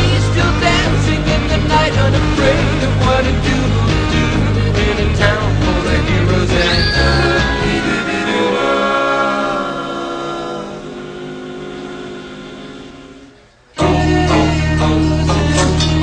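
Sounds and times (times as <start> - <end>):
music with strong bass: 0.0 - 8.4, 13.8 - 16.0
music with singing: 0.0 - 16.0.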